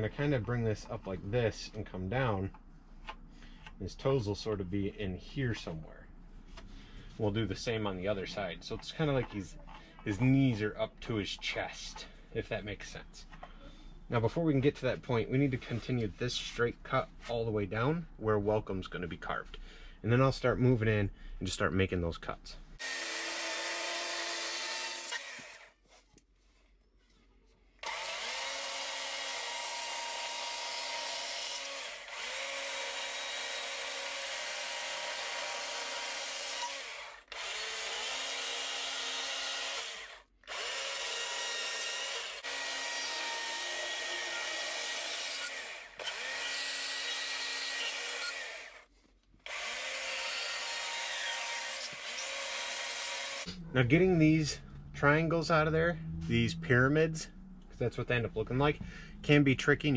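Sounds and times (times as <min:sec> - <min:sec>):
chainsaw cutting wood: 0:22.8 - 0:25.8, 0:27.8 - 0:53.6.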